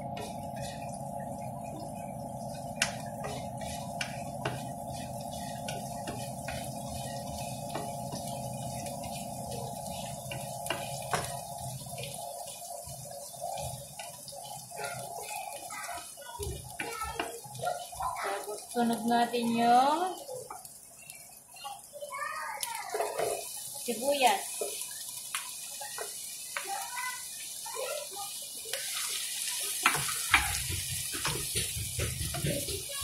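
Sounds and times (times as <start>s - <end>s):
steady hum: 0.0s - 12.4s
garlic sizzling in oil: 0.0s - 33.0s
spoon scraping and tapping pan: 2.8s - 11.5s, 29.8s - 33.0s.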